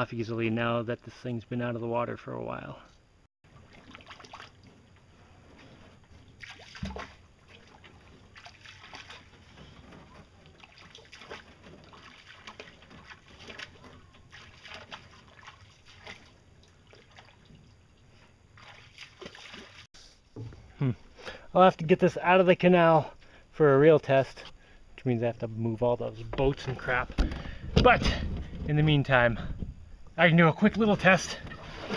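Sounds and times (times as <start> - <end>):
wading splashes in water: 3.5 - 5.1, 6.0 - 17.8, 18.5 - 19.9.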